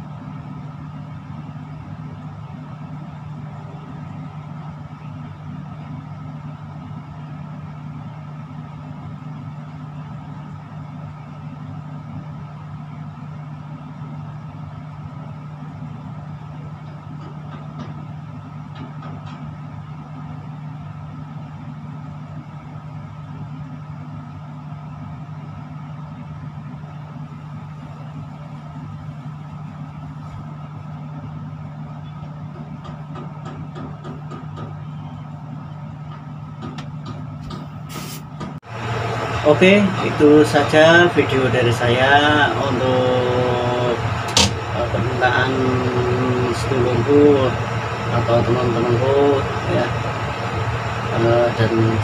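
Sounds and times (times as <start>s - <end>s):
machine hum low drone: 0.0s - 38.0s, 38.6s - 52.0s.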